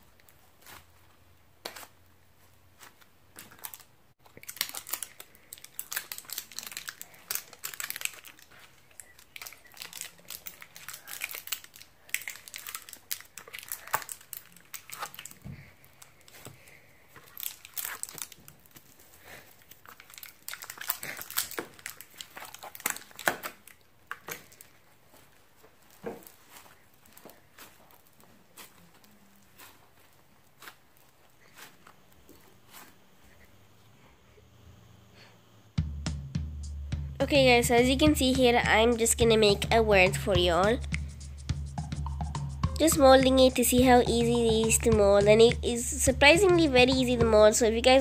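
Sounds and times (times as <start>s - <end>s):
plastic tray crinkling: 2.8s - 32.9s
foam beads crackling: 3.4s - 31.8s.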